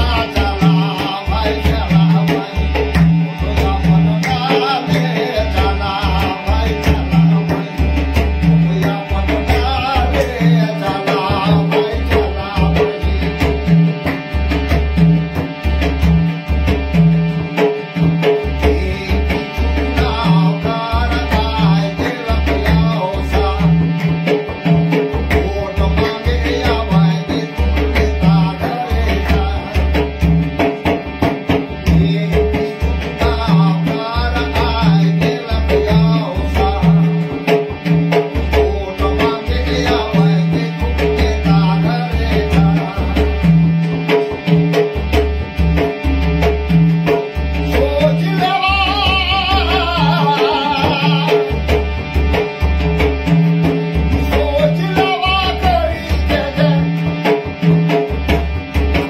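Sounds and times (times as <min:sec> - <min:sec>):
man singing: 0:00.0 - 0:14.2, 0:18.4 - 0:30.9, 0:31.6 - 0:44.4, 0:47.6 - 0:51.9, 0:54.1 - 0:57.5
deep drum beat: 0:00.0 - 0:59.0
harmonium playing: 0:00.0 - 0:59.0.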